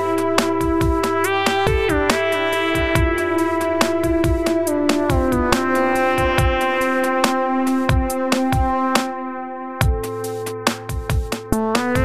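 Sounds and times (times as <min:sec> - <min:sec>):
ticking hi-hats: 0:00.0 - 0:09.1, 0:09.8 - 0:12.0
kick drum: 0:00.6 - 0:02.1, 0:02.8 - 0:03.3, 0:04.0 - 0:05.5, 0:06.2 - 0:06.8, 0:07.9 - 0:08.9, 0:09.8 - 0:10.2, 0:10.9 - 0:12.0.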